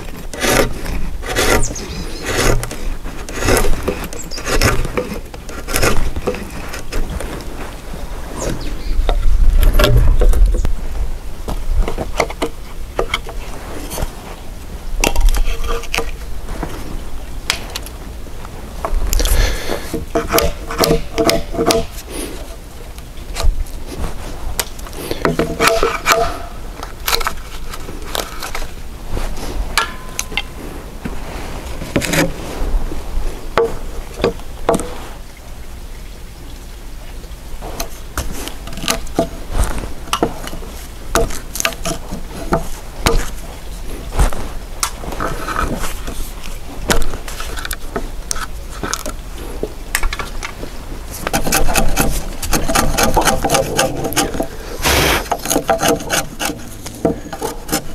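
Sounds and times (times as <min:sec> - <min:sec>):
chisel scraping wood: 0:00.0 - 0:07.8, 0:15.1 - 0:16.8, 0:19.2 - 0:22.4, 0:24.9 - 0:26.5, 0:31.8 - 0:32.5, 0:37.7 - 0:43.4, 0:51.1 - 0:57.9
wooden knocks and cracks: 0:08.5 - 0:10.8, 0:20.0 - 0:21.9, 0:37.8 - 0:43.4.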